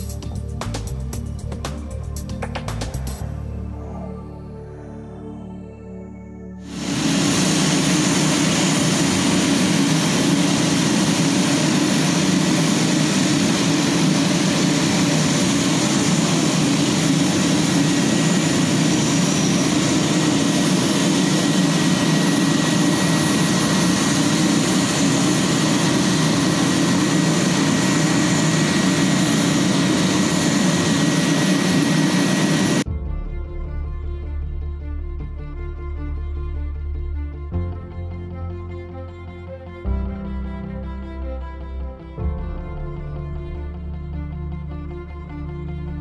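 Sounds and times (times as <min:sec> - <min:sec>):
propeller drone: 0:06.6 - 0:32.9
thin steady engine whine: 0:06.6 - 0:32.9.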